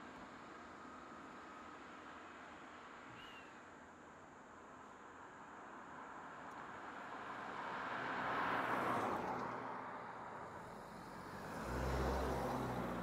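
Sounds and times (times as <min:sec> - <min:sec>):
car engine hum: 0:10.4 - 0:13.0
minivan driving past: 0:10.5 - 0:13.0.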